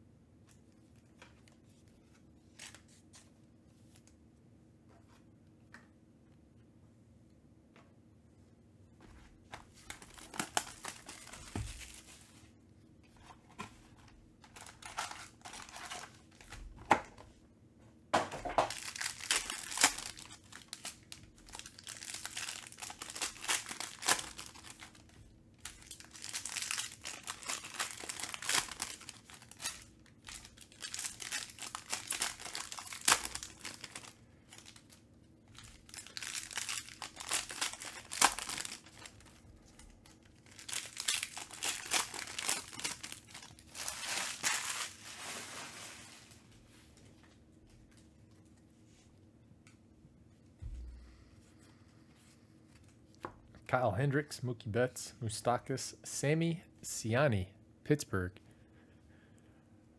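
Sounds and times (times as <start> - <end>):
crinkling plastic foil wrappers: 9.8 - 12.3, 14.4 - 16.8, 18.6 - 46.5.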